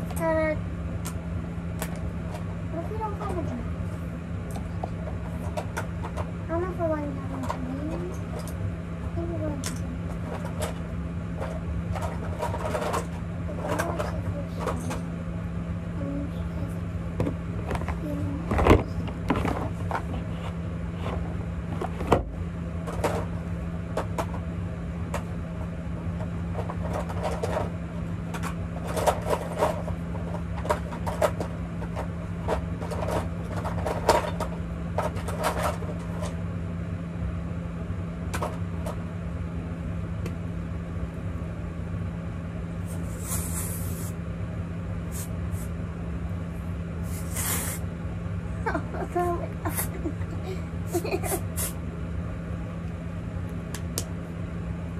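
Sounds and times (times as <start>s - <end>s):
steady low hum: 0.0s - 54.9s
spray bottle spraying: 47.1s - 47.8s.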